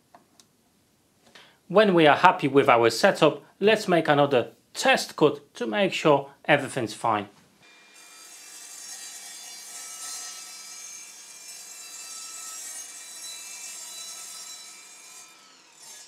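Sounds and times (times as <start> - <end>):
saw blade cutting board: 7.6 - 16.0.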